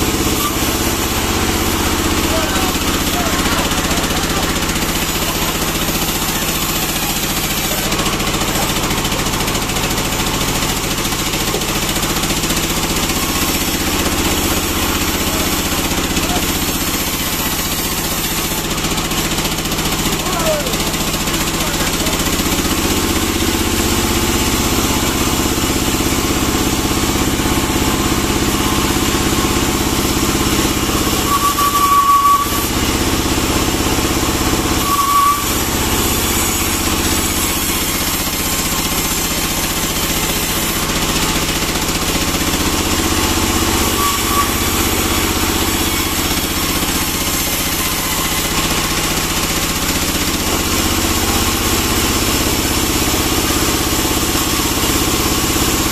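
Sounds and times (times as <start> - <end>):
sawmill engine drone: 0.0 - 55.9
saw high squeals: 30.4 - 33.3, 34.1 - 40.9, 43.3 - 48.9.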